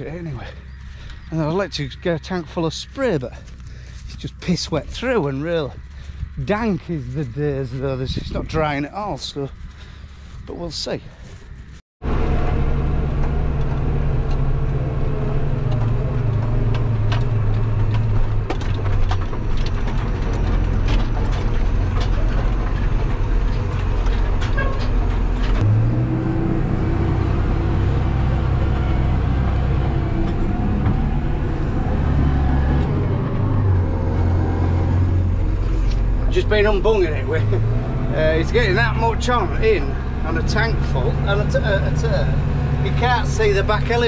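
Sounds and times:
tractor engine droning: 0.0 - 44.0
clicks and rattles: 15.6 - 25.6.

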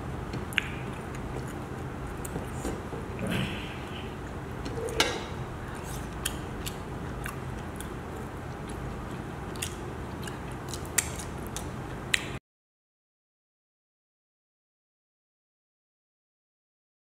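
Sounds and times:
steady low hum: 0.0 - 12.4
person chewing food: 0.2 - 12.3.

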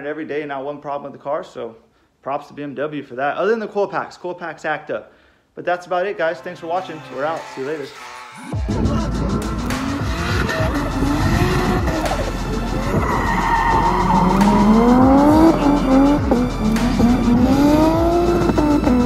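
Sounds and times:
car engine revving: 8.6 - 19.0
tyres squealing: 9.7 - 19.0.

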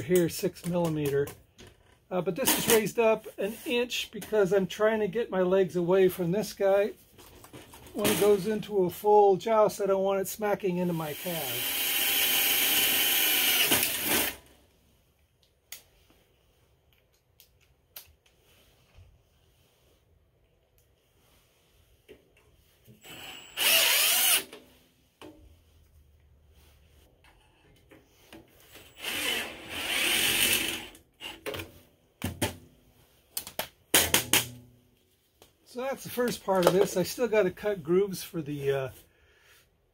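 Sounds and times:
cordless drill boring into metal: 11.1 - 14.4, 23.0 - 24.5, 28.8 - 31.4.

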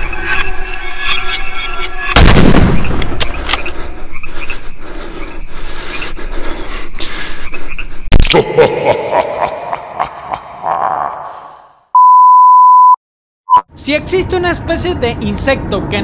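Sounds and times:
loud boom hit: 2.2 - 3.0
frightened panting breaths: 3.6 - 8.1.

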